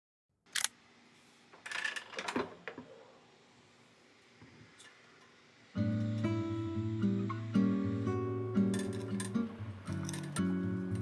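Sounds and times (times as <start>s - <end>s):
guitar music: 5.8s - 11.0s.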